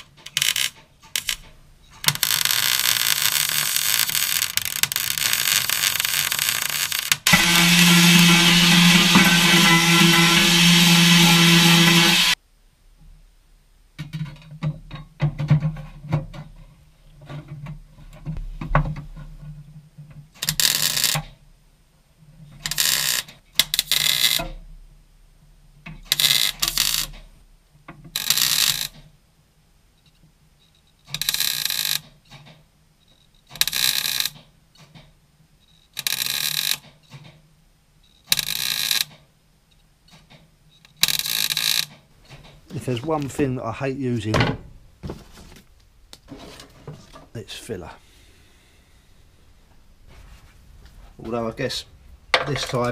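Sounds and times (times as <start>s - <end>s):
welder arc crackle: 0.0s - 12.4s.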